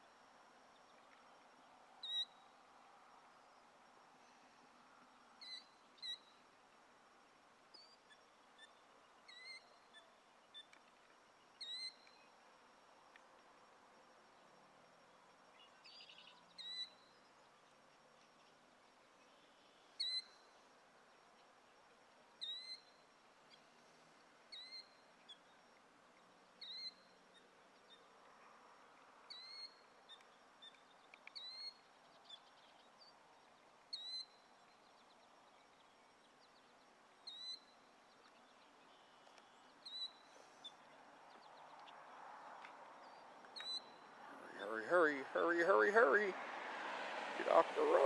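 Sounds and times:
killdeer calling: 2.0s - 2.4s, 5.4s - 6.4s, 7.8s - 10.7s, 11.6s - 12.2s, 15.9s - 17.1s, 20.0s - 20.5s, 22.4s - 23.0s, 24.5s - 25.0s, 26.6s - 27.2s, 29.3s - 30.8s, 33.9s - 34.4s, 37.2s - 37.8s, 39.8s - 40.8s, 43.5s - 46.3s, 47.4s - 48.0s
faint background rush: 37.8s - 48.0s.

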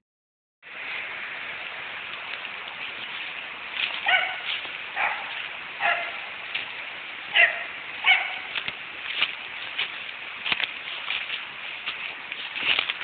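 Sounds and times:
steady background hiss: 0.7s - 13.0s
dog barking: 4.0s - 6.2s, 7.3s - 8.5s.

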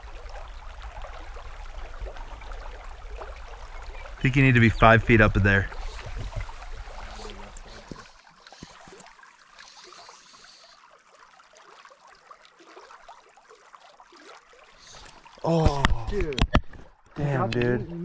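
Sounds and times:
slow creek water: 0.0s - 18.0s
light ticks and rustles: 5.7s - 10.9s.

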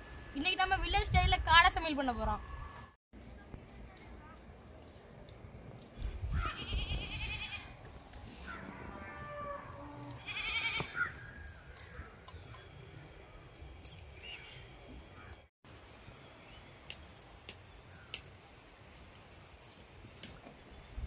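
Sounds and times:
livestock bleating: 9.0s - 10.9s.

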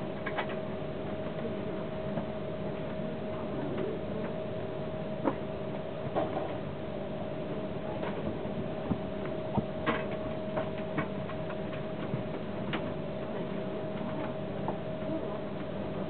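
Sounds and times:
train carriage hum: 0.0s - 16.0s.

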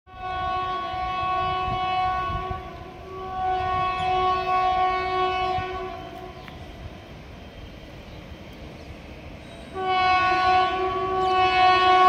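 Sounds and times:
locomotive horn blasts: 0.1s - 6.7s, 9.6s - 12.0s.

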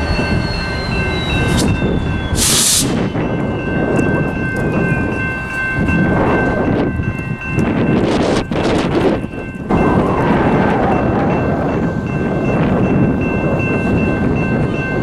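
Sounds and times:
high-pitched whine: 0.0s - 4.9s
diesel locomotive rumbling: 0.0s - 15.0s
short sharp hiss: 2.4s - 3.0s.

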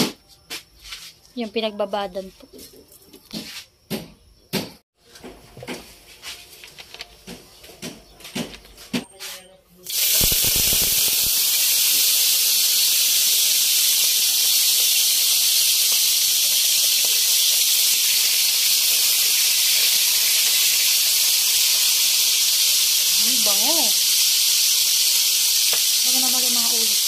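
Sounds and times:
fish sizzling in hot oil: 9.9s - 27.0s.

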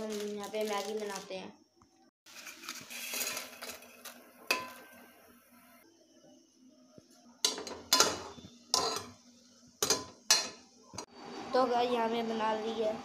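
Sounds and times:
pot and ladle clattering: 2.5s - 5.0s, 7.4s - 9.2s, 9.8s - 10.7s.

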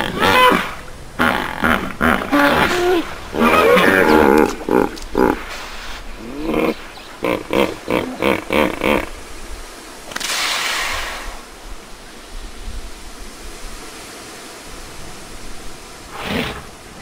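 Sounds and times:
hissing rush of noise: 0.0s - 17.0s.

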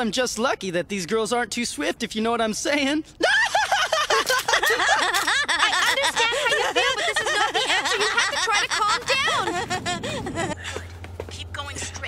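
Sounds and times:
women laughing hysterically: 3.2s - 10.8s.

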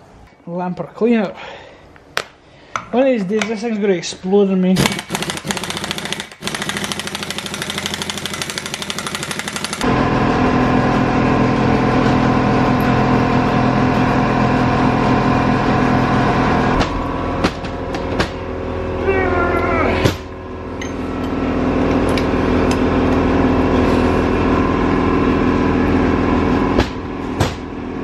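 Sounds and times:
impact wrench rattling: 4.8s - 9.9s
steady machine hum: 9.3s - 28.0s.

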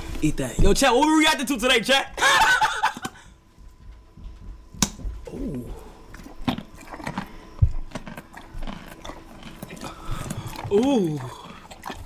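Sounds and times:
horse chewing a carrot: 6.0s - 12.0s.

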